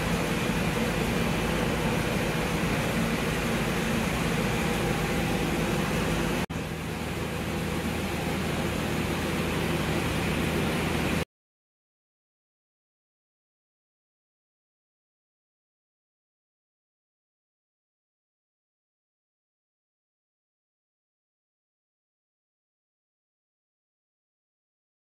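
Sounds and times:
air compressor humming: 0:00.0 - 0:11.2.

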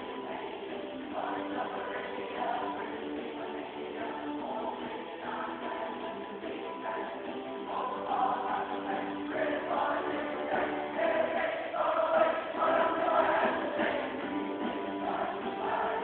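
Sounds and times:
choir singing: 0:00.0 - 0:16.0.

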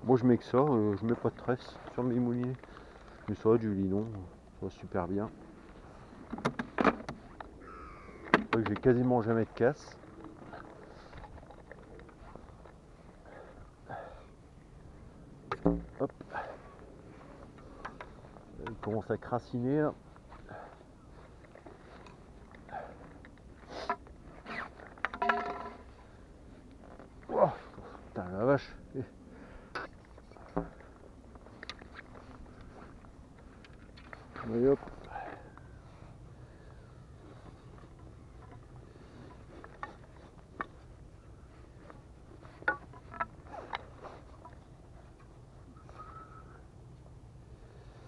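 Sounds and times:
fishing rod clicks and knocks: 0:08.2 - 0:09.1, 0:17.6 - 0:19.0, 0:42.6 - 0:44.6.

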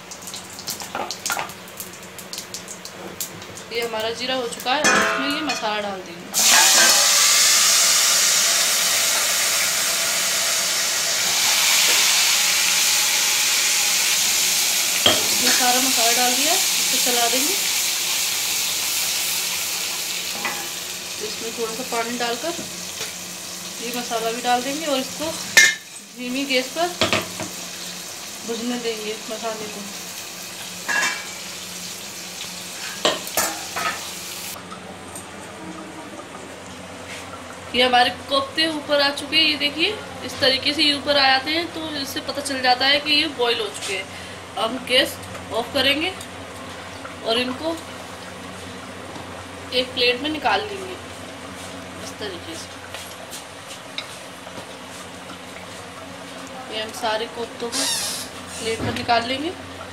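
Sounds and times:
metal plate clanking on pan: 0:04.8 - 0:05.8, 0:15.0 - 0:15.7, 0:20.3 - 0:20.8, 0:25.6 - 0:25.9, 0:30.9 - 0:31.4, 0:32.9 - 0:34.1
spice paste sizzling in oil: 0:06.4 - 0:34.6, 0:49.7 - 0:58.8.

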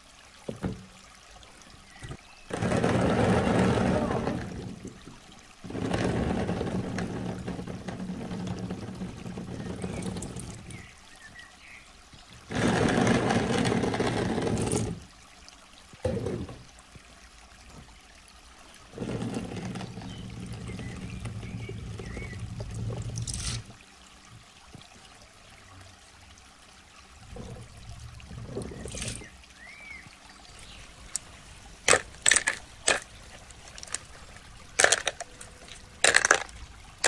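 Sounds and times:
gel beads poured into plastic bin: 0:36.0 - 0:36.5.

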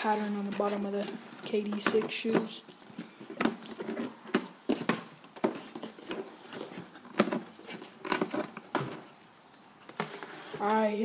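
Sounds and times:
cardboard rubbing and scraping: 0:00.0 - 0:02.5, 0:09.9 - 0:11.0.

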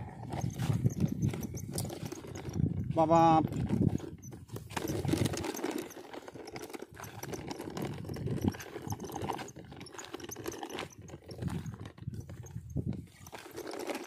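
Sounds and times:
hand scraping gritty dirt: 0:00.0 - 0:14.0.

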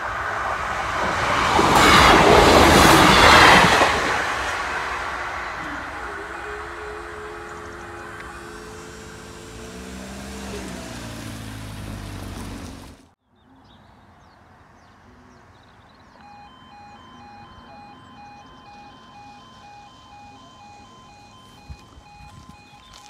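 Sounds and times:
two-tone crossing alarm: 0:00.0 - 0:10.6, 0:16.2 - 0:23.0
car driving past: 0:00.0 - 0:13.0.

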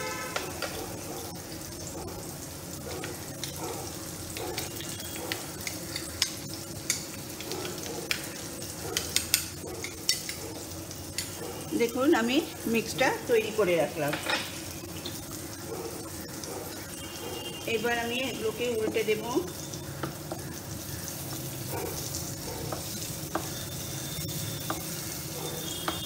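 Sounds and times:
vegetables sizzling in oil: 0:00.0 - 0:26.0
spoon clicking against glass bowl: 0:09.0 - 0:10.4.

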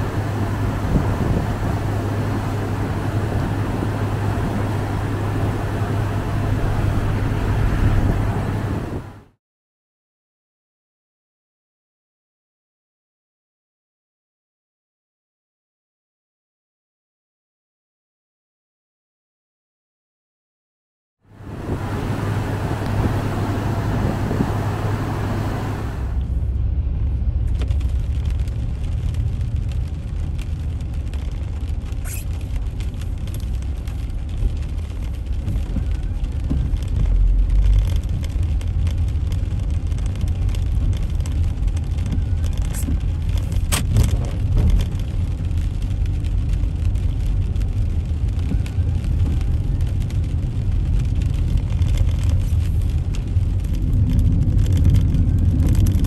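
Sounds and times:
car engine and road rumble: 0:00.0 - 0:09.4, 0:21.2 - 0:56.0.

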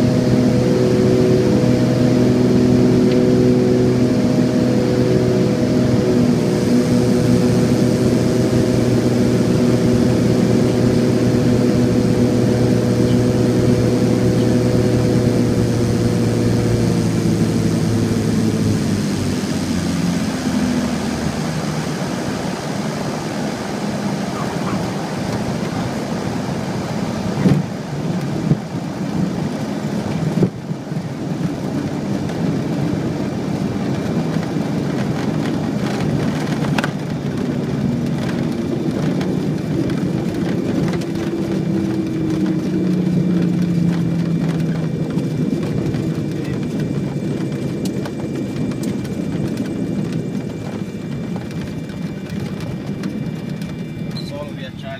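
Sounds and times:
airplane engines droning: 0:00.0 - 0:54.9
rush of air and rolling noise: 0:00.0 - 0:54.9
wheels knocking on runway: 0:33.6 - 0:54.6.

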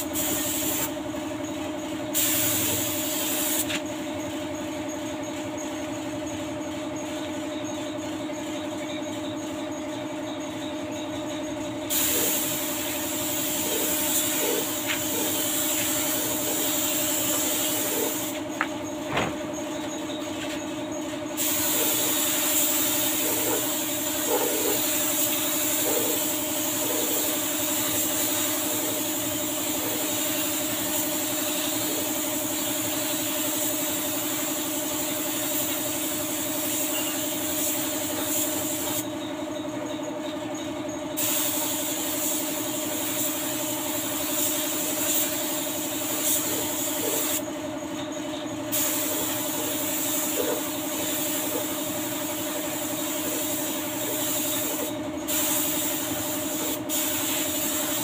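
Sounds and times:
paint spray gun hissing: 0:00.0 - 0:06.0, 0:11.8 - 0:18.7, 0:21.2 - 0:39.1, 0:41.2 - 0:47.5, 0:48.7 - 0:58.0.

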